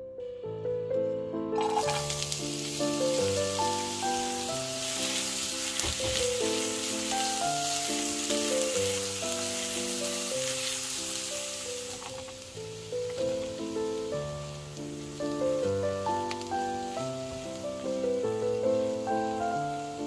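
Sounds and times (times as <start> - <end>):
soft piano music: 0.0 - 20.0
onions sizzling in oil: 1.6 - 20.0.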